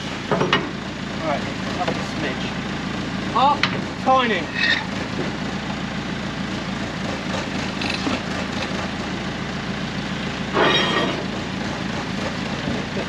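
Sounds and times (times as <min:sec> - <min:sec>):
crane engine running: 0:00.0 - 0:13.0
metallic clatter: 0:10.5 - 0:11.4.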